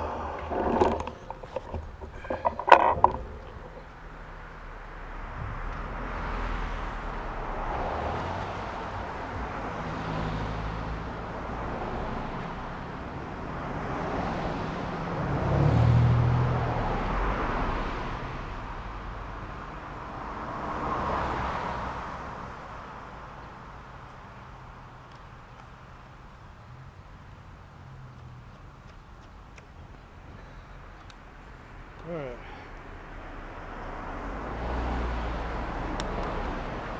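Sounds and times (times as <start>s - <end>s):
pickup truck engine hum: 0.0s - 21.3s
cars passing: 0.0s - 36.9s.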